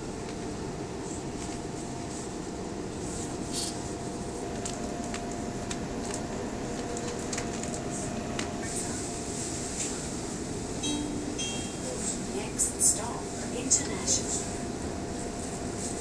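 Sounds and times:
train interior rumble and hum: 0.0 - 16.0
faint steady tone: 10.8 - 12.0.

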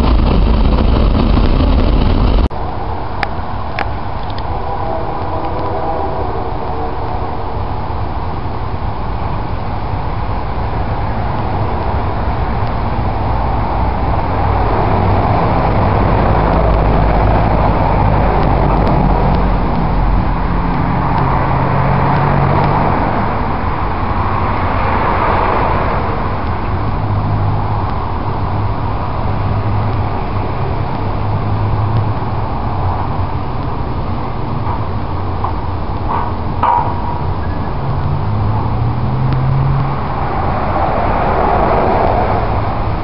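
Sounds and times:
broad rumble: 0.0 - 3.2
diesel locomotive engine drone: 0.0 - 43.0.

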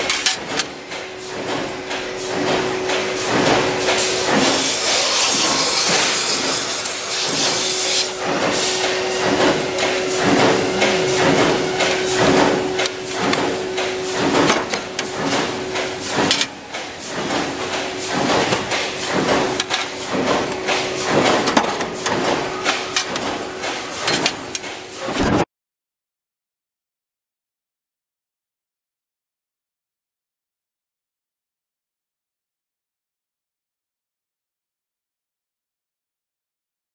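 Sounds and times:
steady machine hum: 0.0 - 25.2.

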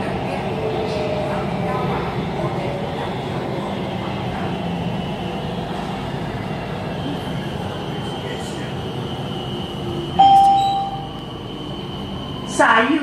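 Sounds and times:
train rumble: 0.0 - 13.0
faint high steady tone: 9.6 - 12.6.

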